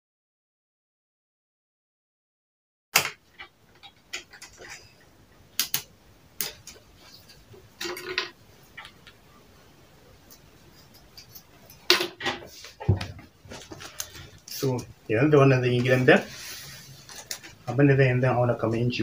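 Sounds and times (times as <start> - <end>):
fabric rustling: 12.5 - 14.8, 15.7 - 17.7.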